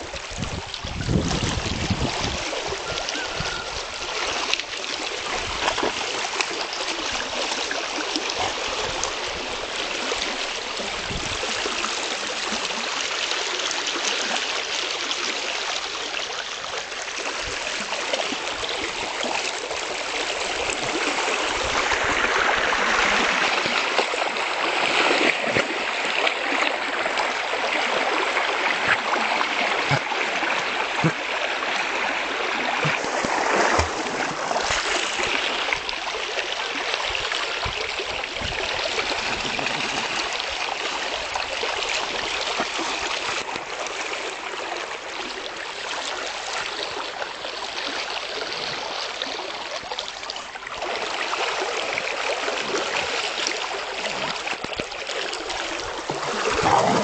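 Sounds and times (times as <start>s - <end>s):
river water rushing: 0.0s - 57.0s
dog splashing in water: 32.8s - 35.4s, 56.0s - 57.0s.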